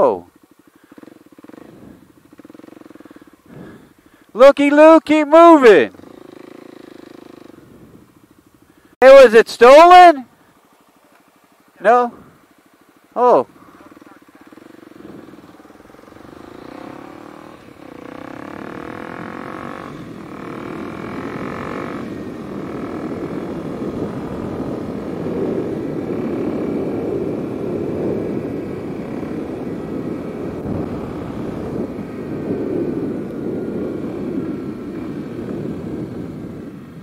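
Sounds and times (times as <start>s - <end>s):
motorcycle revving through gears: 0.0s - 4.3s, 5.1s - 8.3s, 11.8s - 37.0s
rushing wind noise: 7.4s - 8.2s, 14.8s - 37.0s.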